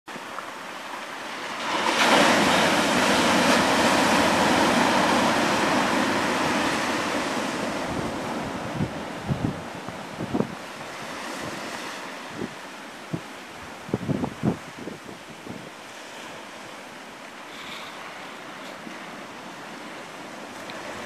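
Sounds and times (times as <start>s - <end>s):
waves breaking on stony beach: 0.1s - 21.0s
wind gusts on microphone: 1.6s - 16.8s.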